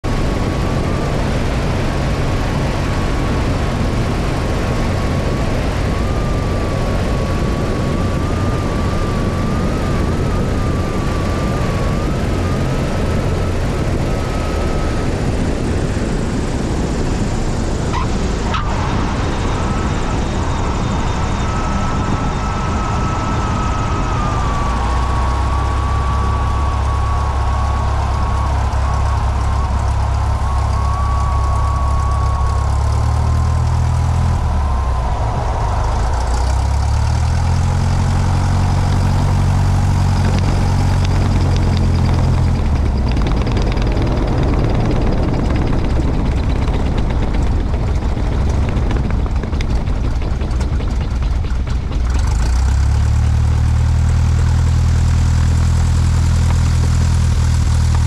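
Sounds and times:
deep rumble of tire rolling: 0.0 - 58.0
propeller plane engine: 0.0 - 58.0
rushing wind: 0.0 - 58.0
faint wavering high tone: 17.9 - 52.2
wheels thumping on touchdown: 38.6 - 53.0.

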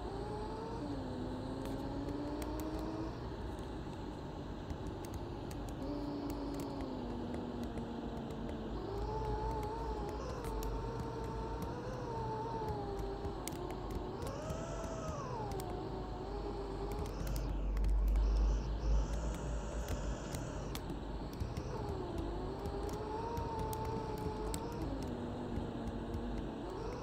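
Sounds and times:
bus engine drone and whine: 0.0 - 27.0.

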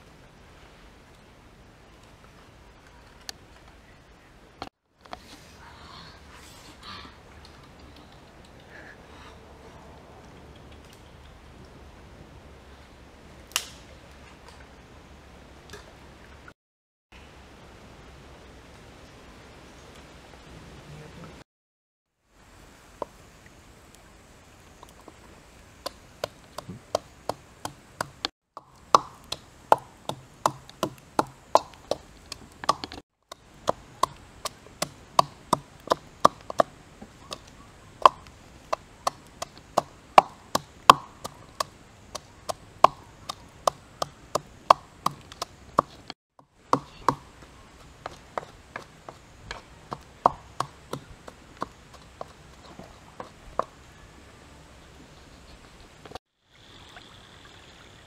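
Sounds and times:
wooden pestle pounding in bowl: 26.2 - 33.0, 33.6 - 36.7, 39.0 - 46.1, 46.7 - 47.4, 48.0 - 53.7.

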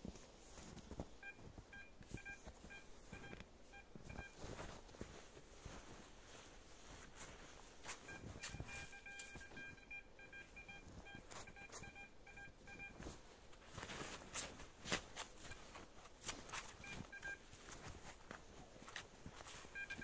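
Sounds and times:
metal detector beeping: 1.1 - 4.6, 7.8 - 13.1, 15.2 - 17.8, 19.4 - 20.0.

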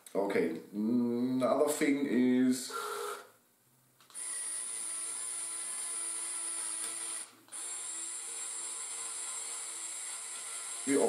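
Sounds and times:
small electric motor whining: 4.1 - 11.0.

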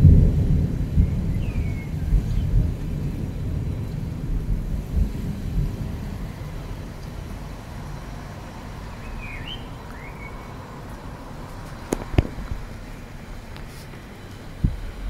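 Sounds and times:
low outdoor rumble: 0.0 - 15.0
bird chirping: 8.8 - 10.6
sharp knocks: 11.9 - 12.7.

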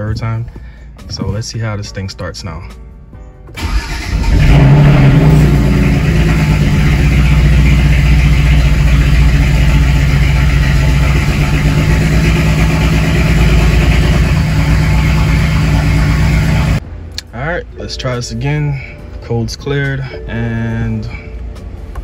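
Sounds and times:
car engine running: 3.6 - 17.0.

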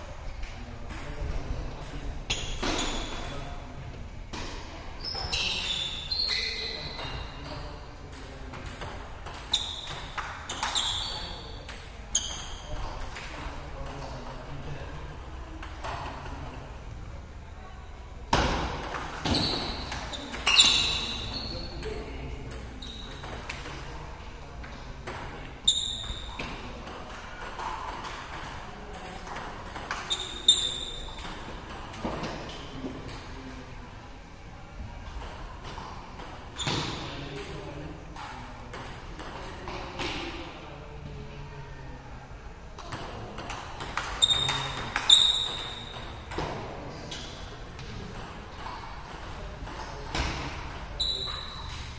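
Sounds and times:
sneakers squeaking on floor: 2.3 - 3.4, 4.4 - 8.2, 9.4 - 13.1, 18.4 - 24.0, 25.6 - 26.9, 29.8 - 32.9, 36.6 - 37.2, 43.5 - 48.8, 49.8 - 51.9.

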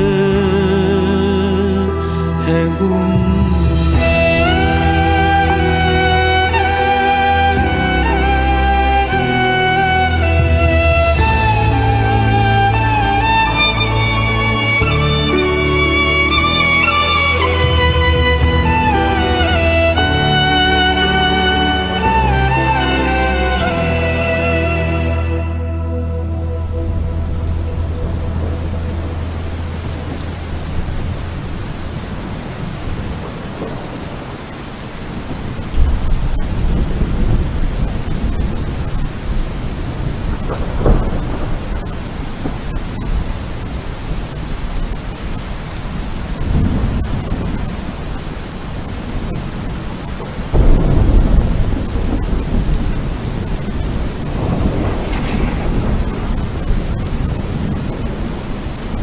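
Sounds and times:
steady rain: 0.0 - 59.0
thunder rolling: 26.5 - 59.0.

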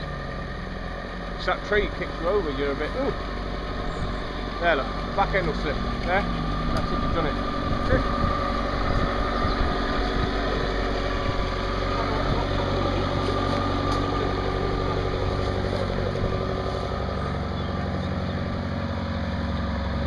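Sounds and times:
diesel engine running at low revs: 0.0 - 20.0.

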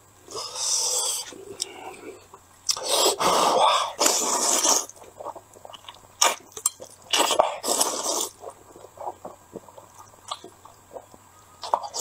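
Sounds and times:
person slurping noodles: 0.3 - 2.1, 2.7 - 5.4, 7.1 - 9.9
wet chewing and lip smacks: 4.0 - 12.0.

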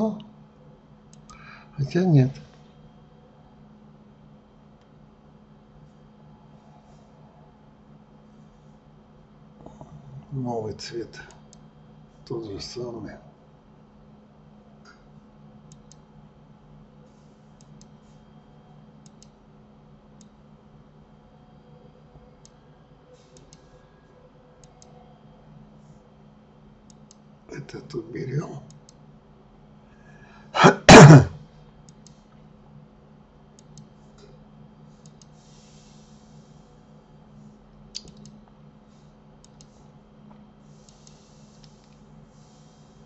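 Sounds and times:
faint electrical hum: 0.0 - 43.0
computer mouse clicking: 1.1 - 1.4, 15.7 - 16.1, 17.6 - 18.0, 19.0 - 19.4, 20.2 - 20.4, 22.4 - 22.6, 23.4 - 23.7, 24.6 - 24.9, 26.8 - 27.3, 31.8 - 32.2, 33.6 - 34.3, 35.0 - 35.4, 37.9 - 38.4, 39.4 - 39.8, 40.8 - 42.0
person coughing: 30.6 - 31.4.

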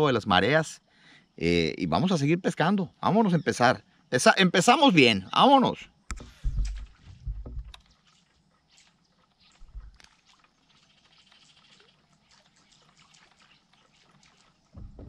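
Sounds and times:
soft thump: 6.1 - 7.7, 14.8 - 15.0.

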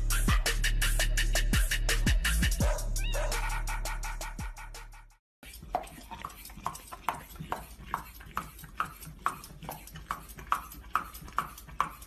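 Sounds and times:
dog chewing and smacking: 5.4 - 12.0.

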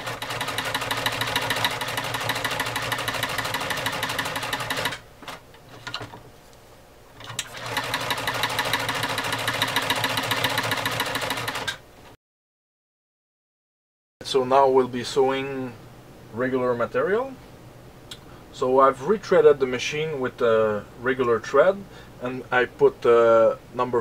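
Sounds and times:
sewing machine stitching leather: 0.0 - 5.4, 7.2 - 11.8.

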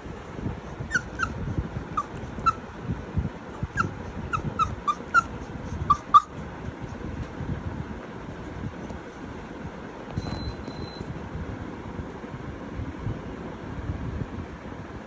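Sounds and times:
puppy whining: 0.8 - 2.6, 3.5 - 7.0.

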